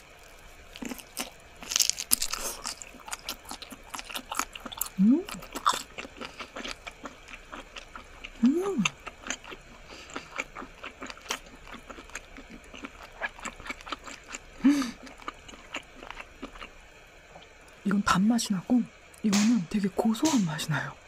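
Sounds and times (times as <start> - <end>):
woman chewing wetly: 0.0 - 17.8
woman humming mm: 5.0 - 5.4, 8.4 - 9.0.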